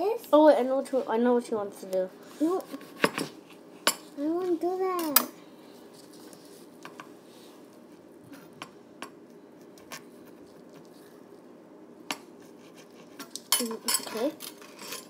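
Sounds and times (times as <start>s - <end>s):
low room noise: 0.0s - 15.0s
utensils and cup clinking: 13.2s - 15.0s.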